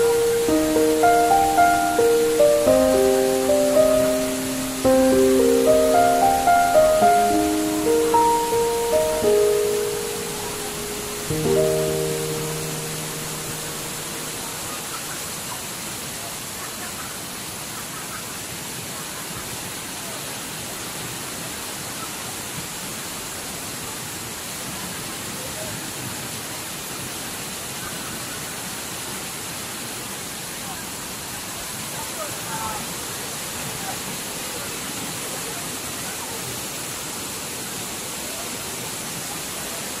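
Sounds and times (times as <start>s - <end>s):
waterfall rushing: 0.0s - 15.3s.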